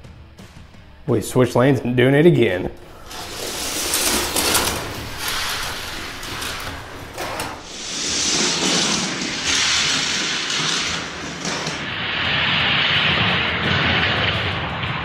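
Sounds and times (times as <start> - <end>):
toy cars rolling on plastic track: 2.8 - 12.5.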